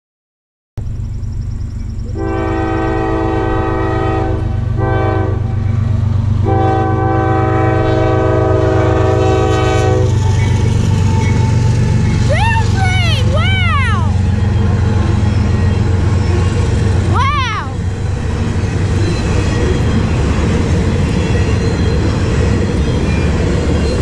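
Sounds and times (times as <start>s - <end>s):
train rumbling: 0.8s - 24.0s
locomotive horn blasts: 2.1s - 5.7s, 6.4s - 10.3s.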